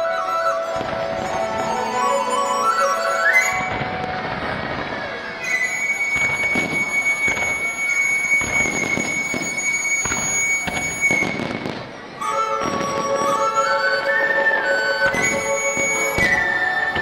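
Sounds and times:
high-pitched firework whistle: 0.0s - 17.0s
music with flute and strings: 0.0s - 17.0s
firework shells bursting: 3.4s - 14.1s.

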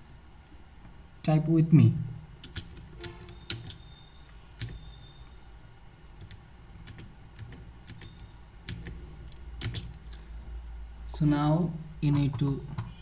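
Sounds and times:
keyboard key clicks: 2.4s - 3.8s, 9.6s - 10.0s.

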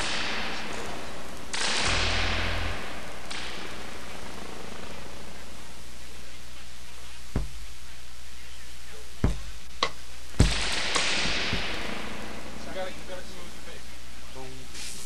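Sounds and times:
outdoor noise: 0.0s - 15.0s
sharp knocks: 7.3s - 7.6s, 9.2s - 12.0s.

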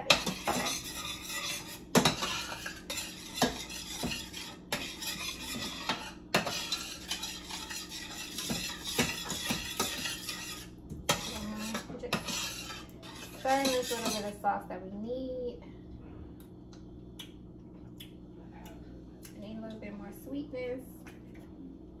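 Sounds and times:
utensil scraping a pot: 0.0s - 14.5s.

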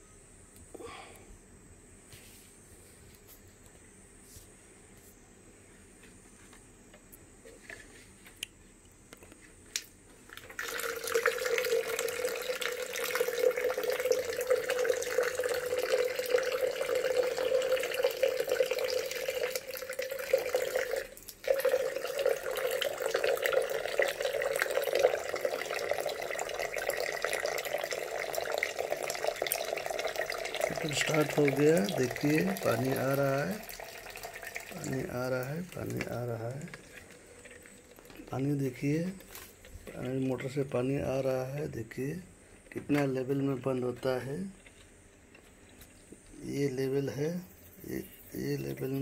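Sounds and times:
water gushing into glass jar: 10.3s - 39.3s, 47.9s - 49.0s.

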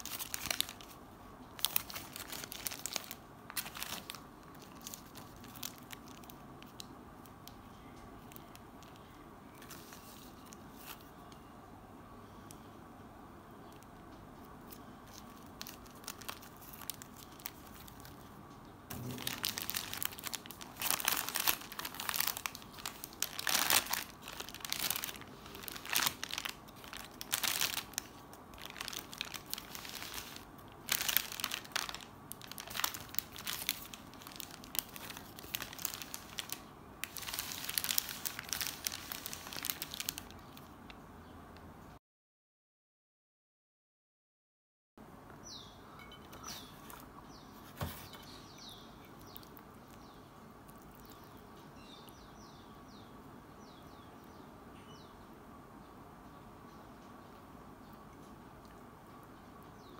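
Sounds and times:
paper wrapper crinkling: 0.0s - 7.6s, 8.2s - 11.4s, 14.6s - 40.9s.

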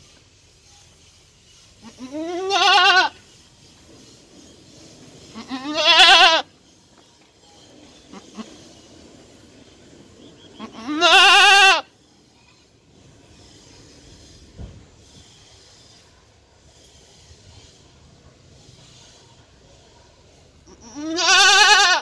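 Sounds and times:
goat bleating: 1.8s - 3.2s, 5.3s - 6.5s, 10.6s - 11.9s, 20.6s - 22.0s.

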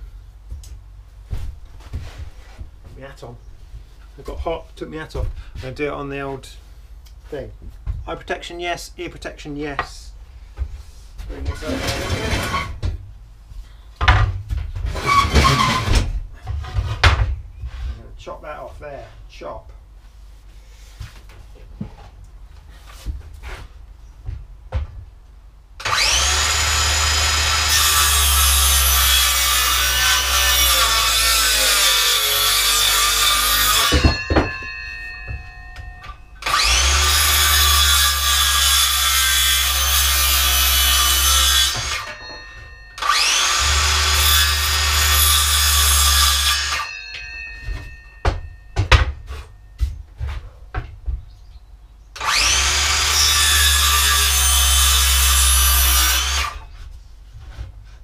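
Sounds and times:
circular saw cutting wood: 25.8s - 34.2s, 36.4s - 42.3s, 43.0s - 46.9s, 52.2s - 56.7s.

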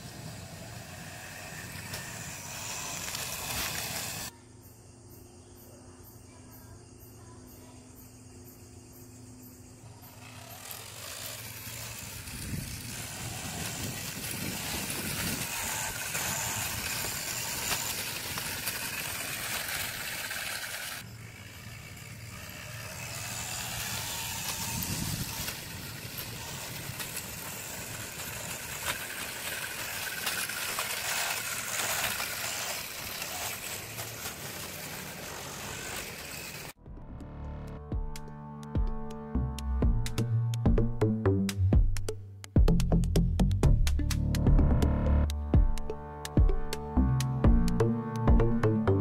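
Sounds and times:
electric motor whining: 0.0s - 4.3s, 9.8s - 36.8s
small wheels rolling on concrete: 0.0s - 4.3s, 9.8s - 36.8s.

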